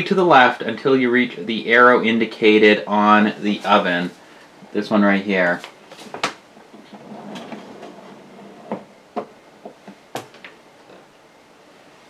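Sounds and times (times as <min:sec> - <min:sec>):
plastic slide scraping: 0:06.8 - 0:08.8.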